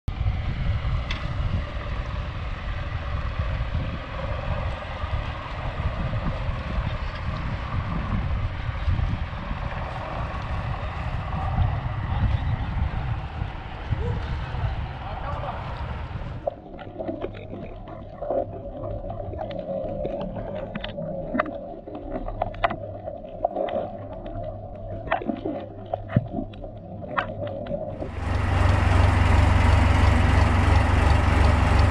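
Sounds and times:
wind blowing across microphone: 0:00.1 - 0:17.7
low steady hum: 0:00.1 - 0:31.9
muffled underwater water sound: 0:00.1 - 0:31.9
sharp clicks and crackles: 0:16.4 - 0:31.9.

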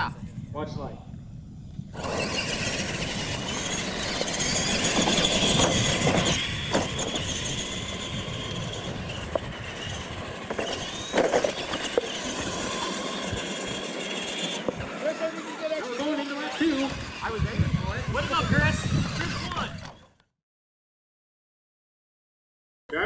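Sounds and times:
toy truck motors whining: 0:01.5 - 0:20.2
tyres on dirt: 0:01.9 - 0:20.1.

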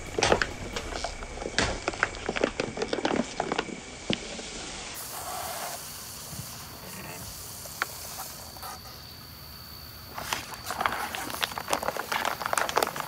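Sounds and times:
plastic bottles crushed by tyre: 0:00.0 - 0:04.2, 0:10.1 - 0:13.0
soda foaming hiss: 0:03.7 - 0:09.1.

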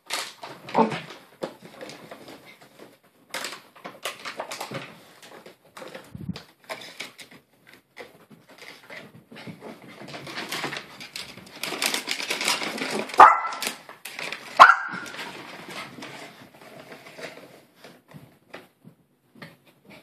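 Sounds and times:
small dog barking sharply: 0:13.2 - 0:13.6, 0:14.6 - 0:15.1.

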